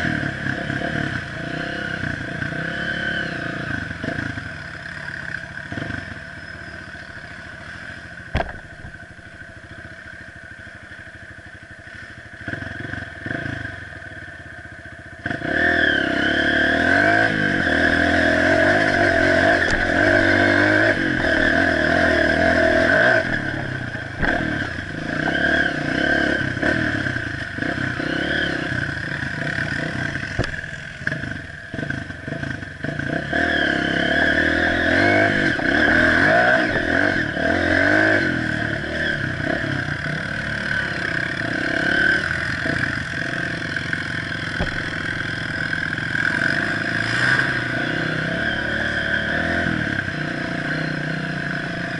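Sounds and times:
dirt bike engine revving: 0:00.0 - 0:06.5, 0:12.5 - 0:13.8, 0:15.2 - 0:51.9
knocks and rattles over rocks: 0:08.3 - 0:08.9, 0:44.6 - 0:45.1.

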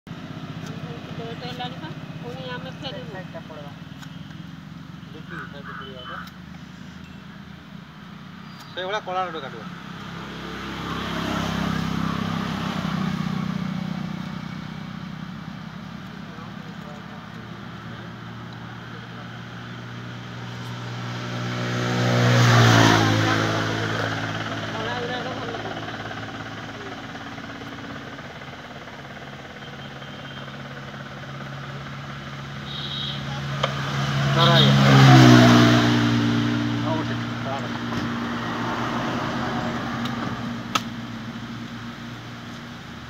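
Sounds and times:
vehicle passing: 0:08.0 - 0:42.4.

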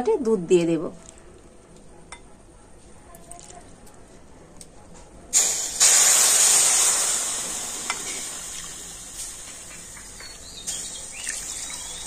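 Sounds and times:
milk sizzling in hot wok: 0:05.3 - 0:12.0.

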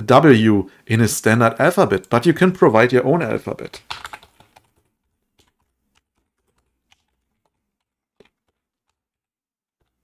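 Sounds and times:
computer keyboard typing: 0:03.7 - 0:09.1.

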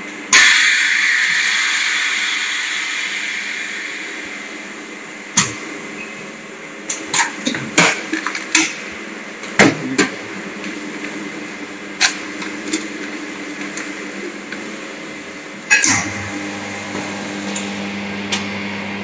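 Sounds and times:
sharp clack: 0:00.3 - 0:05.7, 0:15.7 - 0:16.3
vacuum packing machine humming: 0:03.1 - 0:19.0.

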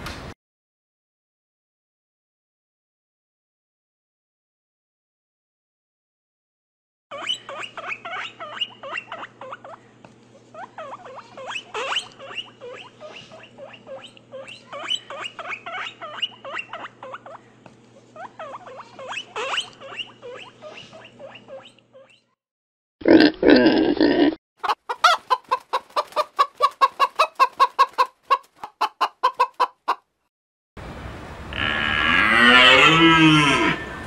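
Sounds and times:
otters squeaking: 0:07.1 - 0:22.4.

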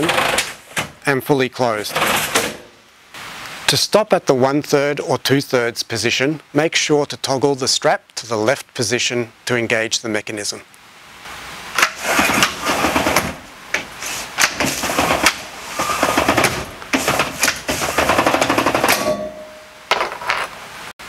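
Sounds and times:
roller shutter slats rattling: 0:00.0 - 0:01.0, 0:01.9 - 0:02.7, 0:11.8 - 0:13.4, 0:14.0 - 0:19.4.

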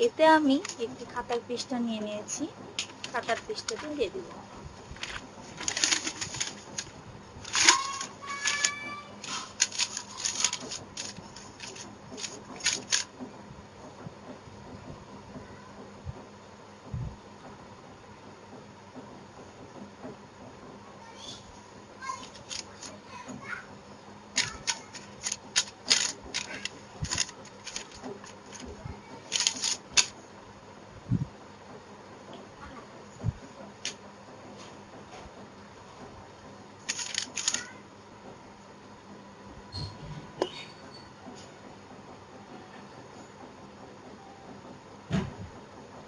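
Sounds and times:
paper crinkling and rustling: 0:05.0 - 0:13.1, 0:22.2 - 0:23.0, 0:24.4 - 0:30.1, 0:36.9 - 0:37.6.

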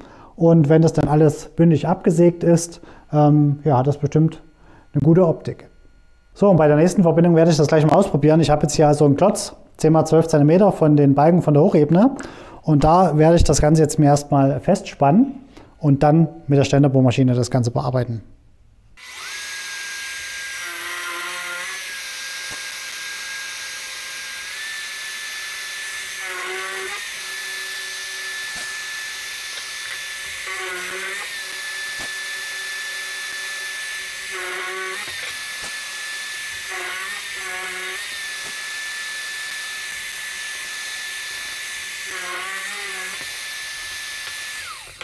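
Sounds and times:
drill press whining: 0:19.0 - 0:45.0.

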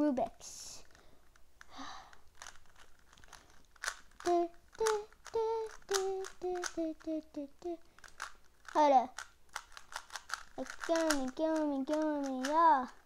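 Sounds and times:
plastic puzzle cube clicking: 0:00.8 - 0:13.0
boy humming a tune: 0:04.2 - 0:07.9, 0:10.6 - 0:12.9.

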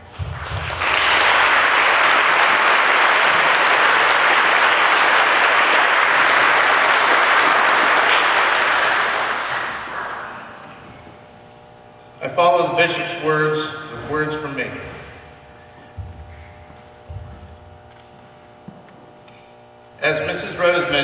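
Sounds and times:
audience clapping: 0:00.0 - 0:10.8.

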